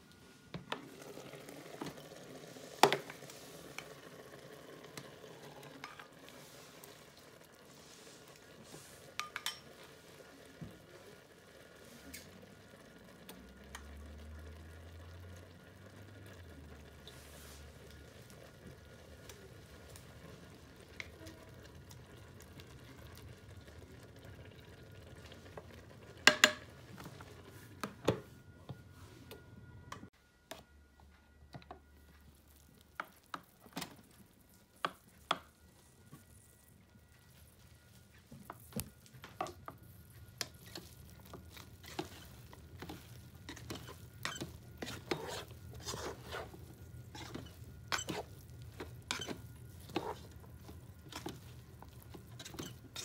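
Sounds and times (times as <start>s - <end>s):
faint steady sizzle: 0.0s - 53.0s
pot and lid clicks and knocks: 26.3s - 26.7s.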